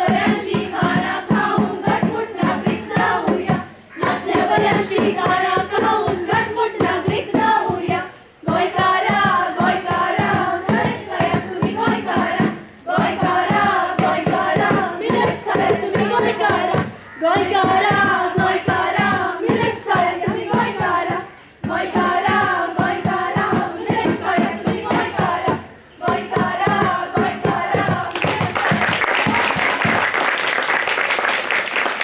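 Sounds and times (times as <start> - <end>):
group singing: 0.0 - 29.4
hand drum beat: 0.0 - 30.1
applause: 28.0 - 32.0.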